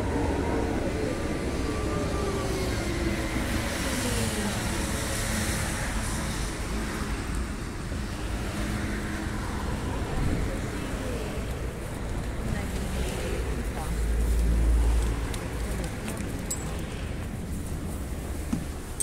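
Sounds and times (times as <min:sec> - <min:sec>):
tram drive whining down: 0:00.0 - 0:05.0.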